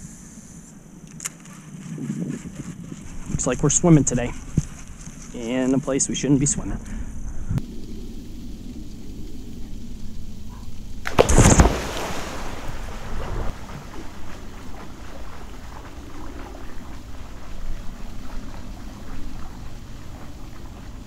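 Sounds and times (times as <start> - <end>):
wind rumble on microphone: 1.5 - 5.4, 6.0 - 11.8, 12.7 - 21.0
loud splash of diving: 11.0 - 16.5
water churning: 11.0 - 21.0
swimming stroke splashes: 11.1 - 21.0.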